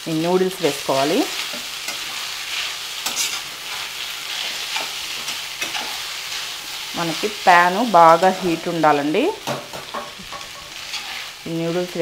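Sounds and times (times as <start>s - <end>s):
noodles sizzling in pan: 0.0s - 12.0s
spatula scraping and clinking pan: 1.4s - 6.5s, 9.6s - 11.4s.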